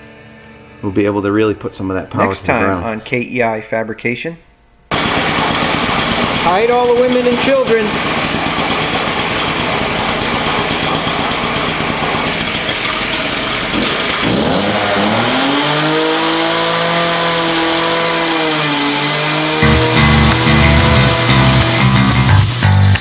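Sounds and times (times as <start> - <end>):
cut-off saw cutting steel: 4.9 - 23.0.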